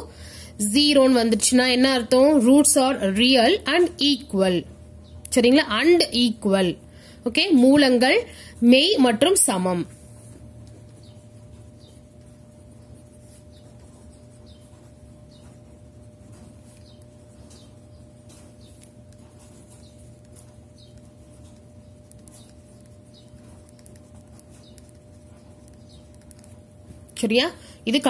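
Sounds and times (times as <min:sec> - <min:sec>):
steady low hum: 0:00.0 - 0:28.0
pen scratching on paper: 0:10.6 - 0:27.0.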